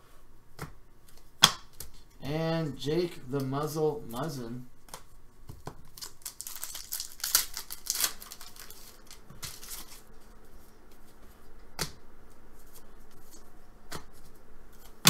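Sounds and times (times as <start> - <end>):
cards rustling: 4.9 - 10.0
wrapper tearing and crinkling: 5.8 - 10.0.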